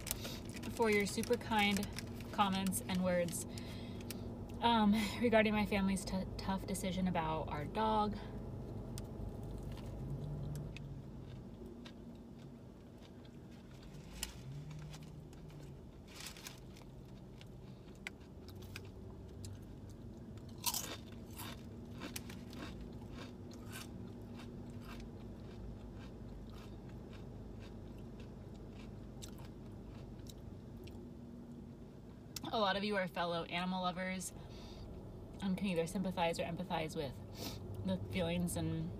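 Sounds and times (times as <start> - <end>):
chips crunching: 0.0 - 4.2, 9.4 - 31.0
chewing soft sandwich: 9.0 - 31.1.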